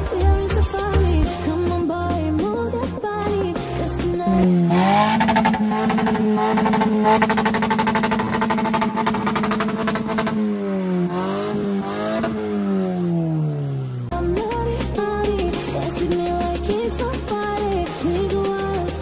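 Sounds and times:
car engine revving: 4.0 - 17.8.

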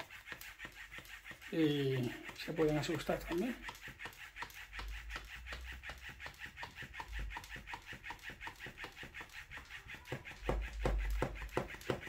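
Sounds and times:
small electric motor: 0.0 - 12.0
toy tail clicking: 0.0 - 12.0.

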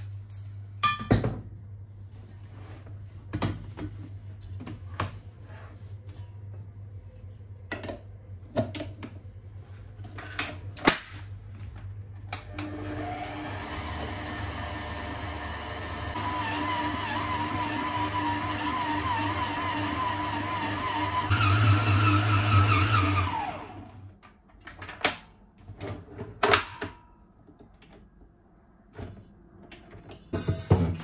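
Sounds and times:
electric mixer motor whining: 12.6 - 24.0.

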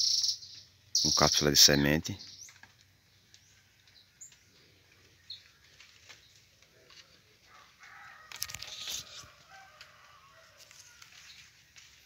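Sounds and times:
rustling and clicks: 2.4 - 7.3, 8.1 - 12.0
rooster crowing: 7.4 - 11.4.

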